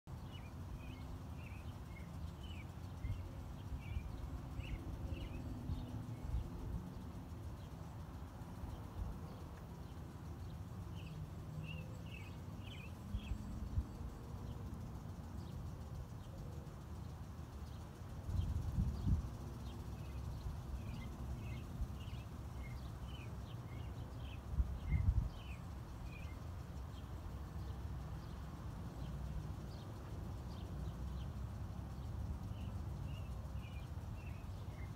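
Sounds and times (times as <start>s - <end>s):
small birds chirping: 0.1s - 34.9s
wind rumbling on microphone: 18.2s - 22.1s, 23.8s - 26.3s.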